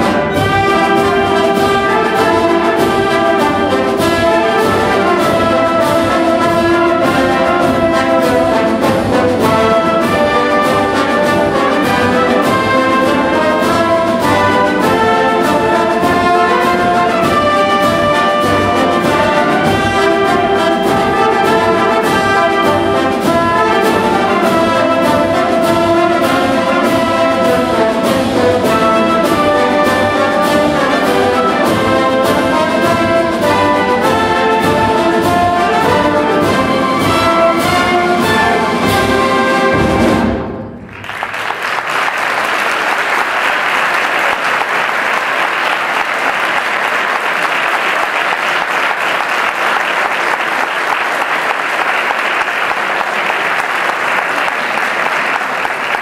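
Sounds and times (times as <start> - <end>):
brass and percussion band playing: 0.0 - 56.0
audience applause: 40.8 - 56.0.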